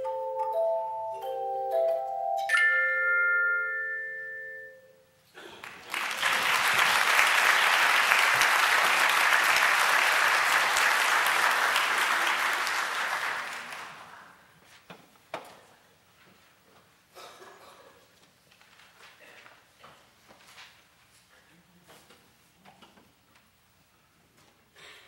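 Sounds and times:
handbells ringing chord: 0:00.0 - 0:05.1
audience applause: 0:05.5 - 0:14.4.

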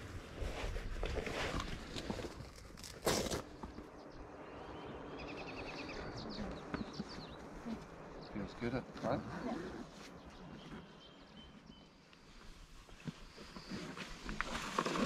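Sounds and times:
small bird chirping: 0:04.0 - 0:08.7.

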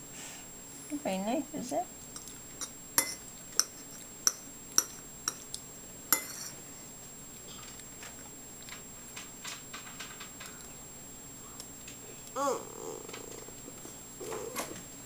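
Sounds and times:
cutlery clinking against a dish: 0:02.2 - 0:05.5, 0:06.2 - 0:06.6.

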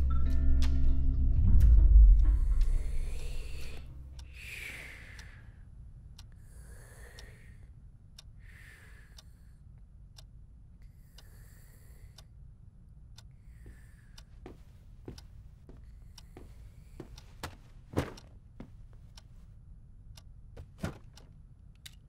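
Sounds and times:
music: 0:00.0 - 0:04.4
people breathing asleep: 0:02.4 - 0:09.7, 0:10.8 - 0:12.4, 0:13.2 - 0:18.3
clock ticking: 0:02.6 - 0:05.4, 0:06.1 - 0:06.4, 0:08.2 - 0:08.4, 0:10.1 - 0:10.4, 0:13.0 - 0:22.0.

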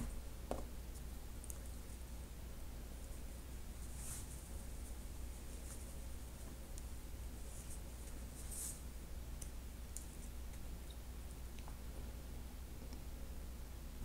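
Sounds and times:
low steady hum: 0:00.0 - 0:14.0
soft scratchy brushes: 0:03.0 - 0:09.0
paper towel rustling: 0:03.2 - 0:06.7, 0:07.4 - 0:08.9.

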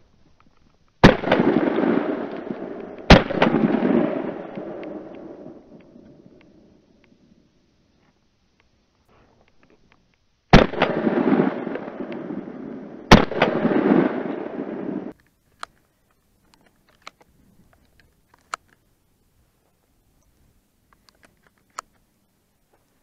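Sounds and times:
shotgun shots: 0:01.0 - 0:06.4, 0:10.5 - 0:15.1
faint clicks: 0:15.1 - 0:19.0, 0:19.7 - 0:23.0.

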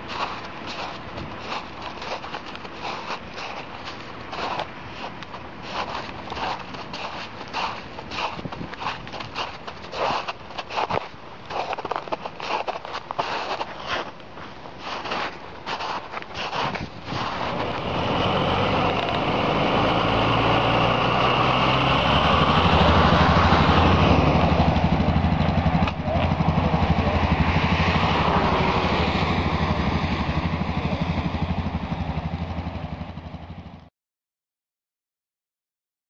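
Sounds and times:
vehicle engine running: 0:00.0 - 0:11.0, 0:16.5 - 0:33.9.

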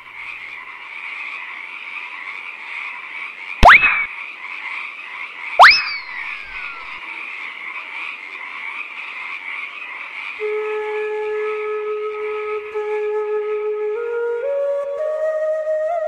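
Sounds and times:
frogs croaking: 0:00.0 - 0:10.6
swooping sound effect: 0:03.6 - 0:04.1, 0:05.6 - 0:07.0
soft flute melody: 0:10.4 - 0:16.0.

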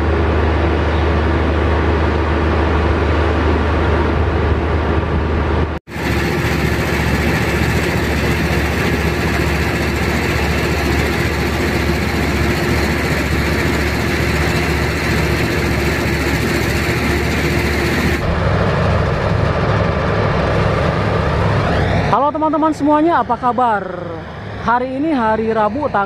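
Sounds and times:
diesel engine running: 0:00.0 - 0:22.5
heavy engine drone: 0:00.0 - 0:26.0
steady hum: 0:00.0 - 0:26.0.

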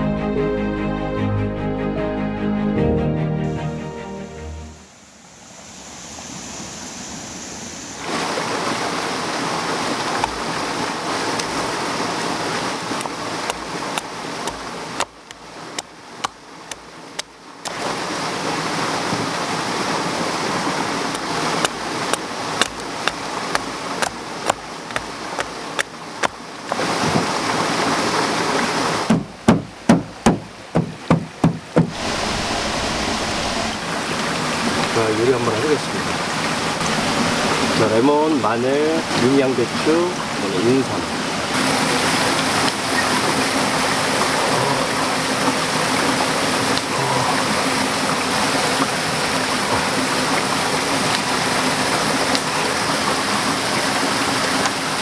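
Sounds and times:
stream rushing over rocks: 0:04.8 - 0:55.0
blade chopping wood: 0:13.0 - 0:17.3, 0:21.2 - 0:26.4.

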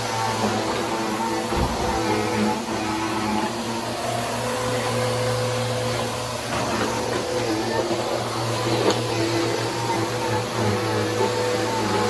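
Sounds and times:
vacuum cleaner running: 0:00.0 - 0:12.0
knock: 0:01.5 - 0:02.0.

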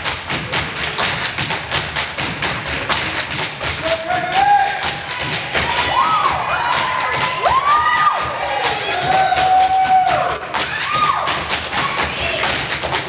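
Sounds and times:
fast thumping beat: 0:00.0 - 0:13.0
high whoops: 0:05.6 - 0:12.4.

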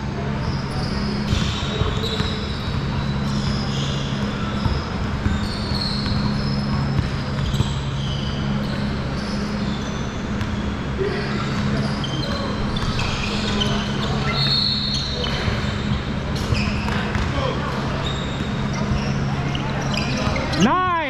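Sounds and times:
shoe squeaks: 0:00.0 - 0:21.0
steady low hum: 0:00.0 - 0:21.0
basketball bouncing: 0:01.1 - 0:08.9, 0:15.2 - 0:17.4.

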